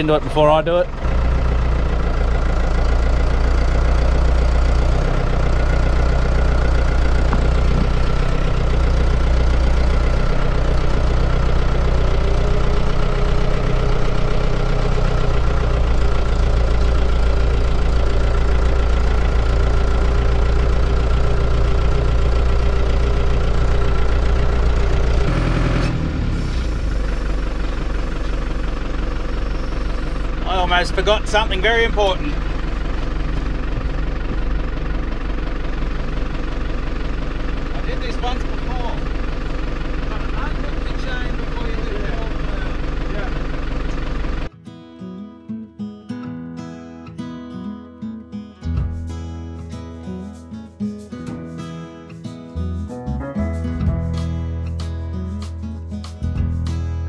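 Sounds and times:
tractor engine running under load: 0.0 - 44.5.

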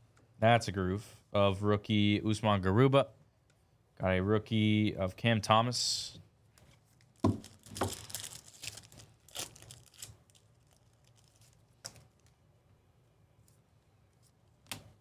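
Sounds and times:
cards set down on table: 7.2 - 8.0
foil wrapper tearing and crinkling: 7.4 - 11.7.

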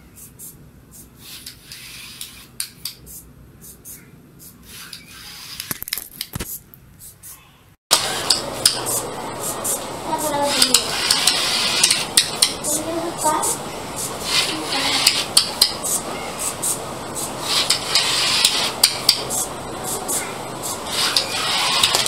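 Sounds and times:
motor whine: 7.9 - 22.0
toy car clattering clicks: 20.9 - 22.0.

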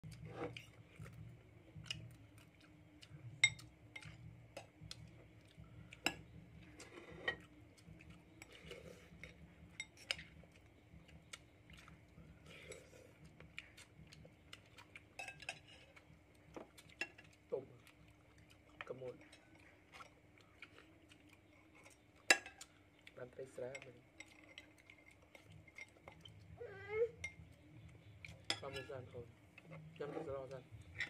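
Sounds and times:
faint steady hum: 0.0 - 31.0
cutlery clinking on plates: 6.0 - 7.5, 15.2 - 16.0, 21.9 - 22.7, 28.4 - 29.0.

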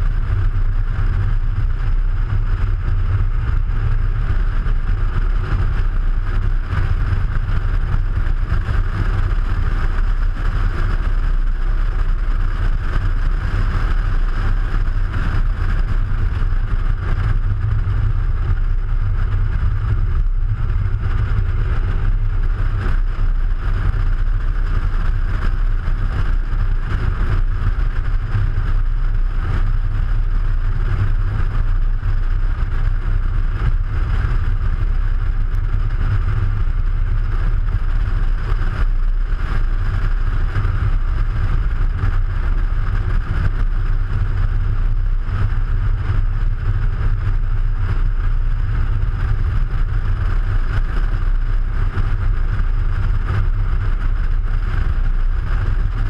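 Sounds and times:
low wind rumble: 0.0 - 56.0.

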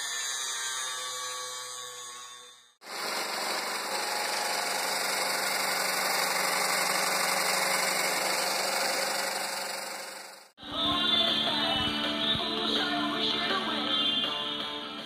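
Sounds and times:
metalworking machine on steel: 2.8 - 10.5.

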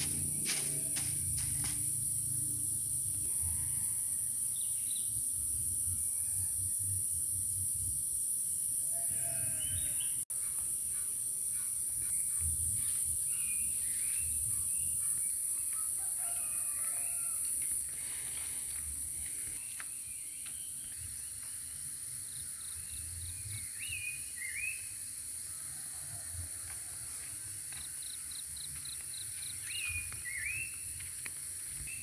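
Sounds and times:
high-pitched insect drone: 0.0 - 19.6
rooster crowing: 15.8 - 17.6.

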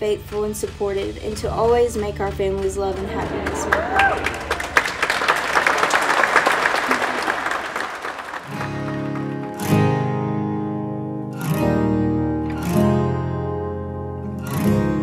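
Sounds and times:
crowd applauding: 2.8 - 9.9
acoustic guitar strummed chords: 8.5 - 15.0.

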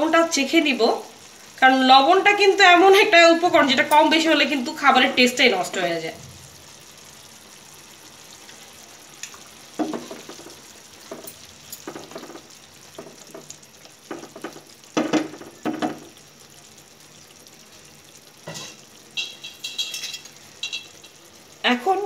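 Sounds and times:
curry simmering and sizzling: 0.0 - 22.0
spatula scraping a pan: 18.5 - 21.2.

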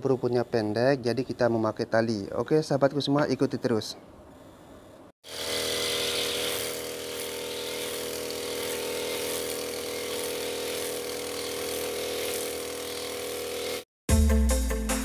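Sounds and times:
brush cutter engine running: 5.3 - 13.9.

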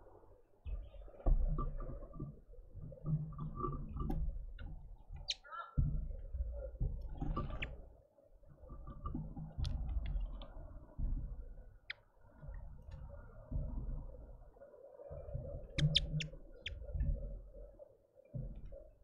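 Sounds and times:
small birds chirping: 5.1 - 5.8, 7.4 - 8.0, 15.7 - 17.0.

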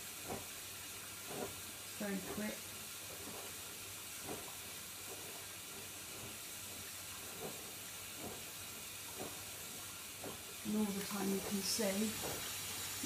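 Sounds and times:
water running into washing machine: 0.0 - 13.0.

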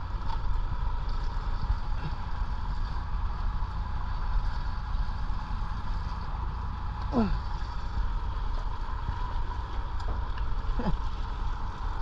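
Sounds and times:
boat engine rumbling: 0.0 - 12.0
faint engine whine: 0.0 - 12.0.

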